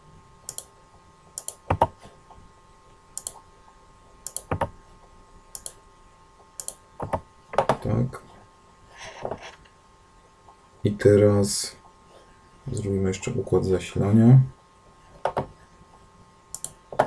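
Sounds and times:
computer mouse clicks: 0:00.5 - 0:00.7, 0:01.4 - 0:01.9, 0:03.2 - 0:03.4, 0:04.2 - 0:04.7, 0:05.5 - 0:05.8, 0:06.6 - 0:07.2, 0:16.5 - 0:17.0.

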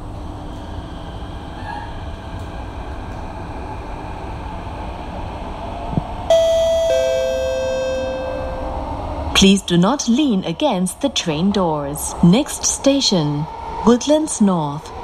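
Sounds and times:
metro train running: 0:00.0 - 0:15.0
two-note descending chime: 0:06.3 - 0:08.8.

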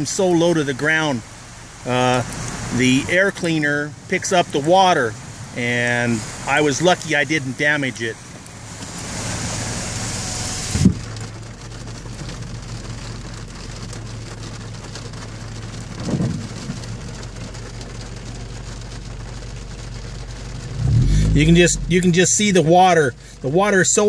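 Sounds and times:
cars driving through floodwater: 0:00.0 - 0:24.0
thump: 0:10.7 - 0:11.0
low steady hum: 0:20.3 - 0:23.4.

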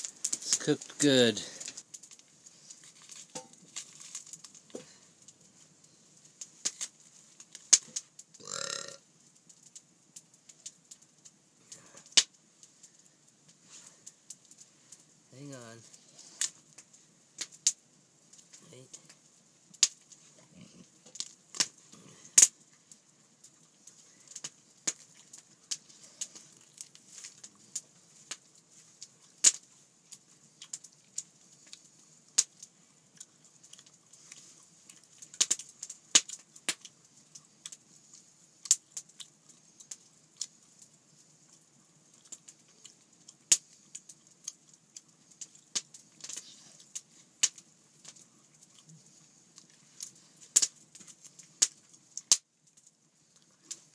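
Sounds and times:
faint hiss: 0:00.0 - 0:53.9
wood fire crackling: 0:00.0 - 0:53.9.

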